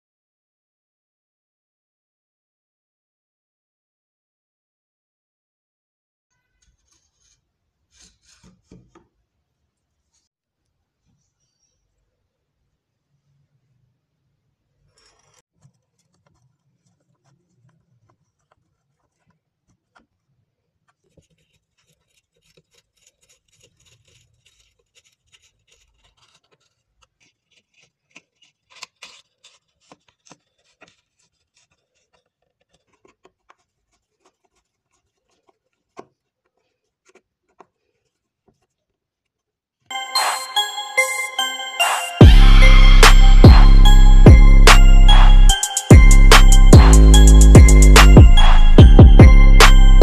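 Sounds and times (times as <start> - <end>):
screwdriver scraping and clicking: 14.9 - 20.2, 20.8 - 39.4.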